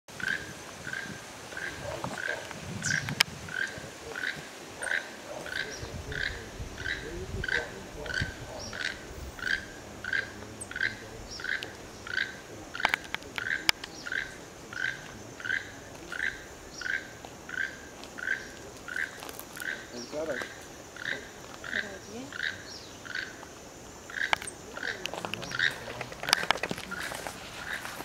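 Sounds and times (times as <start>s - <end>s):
toucan croaking call: 0.1s - 28.0s
sharp clicks: 12.8s - 14.0s, 24.2s - 26.9s.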